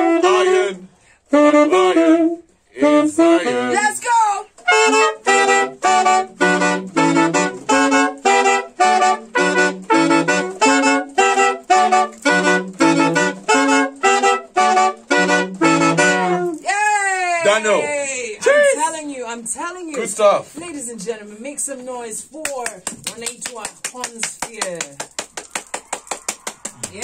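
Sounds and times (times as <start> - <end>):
horn ensemble playing reggae: 0.0 - 16.6.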